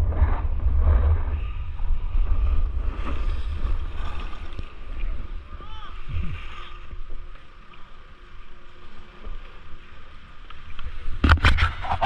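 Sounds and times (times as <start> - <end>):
wind buffeting microphone: 0.0 - 7.2.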